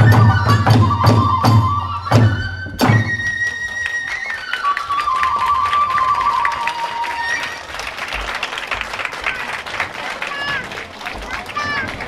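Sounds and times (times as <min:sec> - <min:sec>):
bamboo flute: 0:00.0 - 0:07.8.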